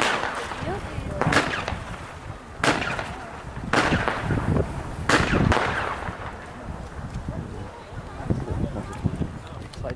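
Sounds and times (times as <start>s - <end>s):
firework pops: 0.0s - 7.3s.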